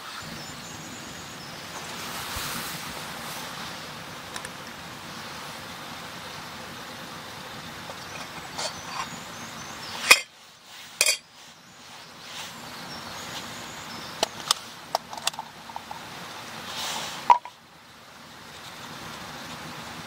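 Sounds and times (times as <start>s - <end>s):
metal pot lid clinking: 10.0s - 10.3s, 11.0s - 11.2s.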